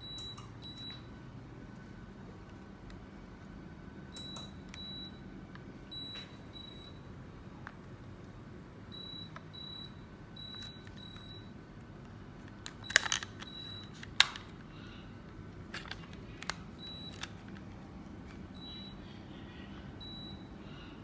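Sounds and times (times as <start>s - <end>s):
air conditioner short high beeps: 0.0s - 1.3s, 4.0s - 7.2s, 8.9s - 11.6s, 12.8s - 14.2s, 16.7s - 17.4s, 18.4s - 21.0s
low steady hum: 0.0s - 21.0s.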